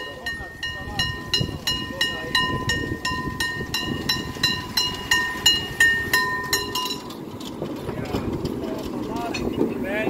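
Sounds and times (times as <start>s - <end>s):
bell struck rapidly: 0.0s - 7.1s.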